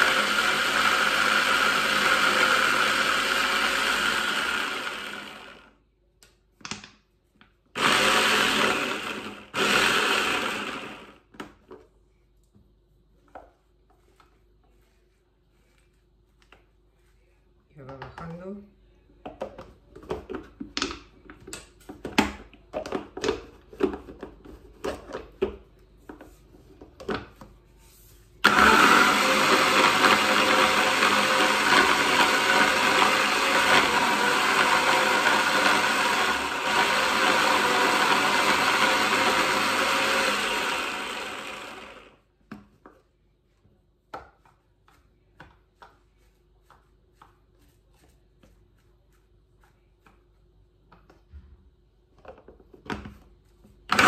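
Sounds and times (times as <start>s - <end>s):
hand blender motor running: 0.0s - 5.7s, 7.8s - 11.1s, 28.4s - 42.2s.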